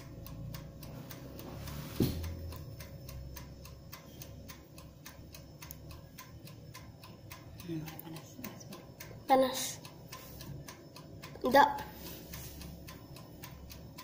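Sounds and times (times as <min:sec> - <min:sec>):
timer ticking: 0:00.0 - 0:14.0
short thump: 0:02.0 - 0:02.2.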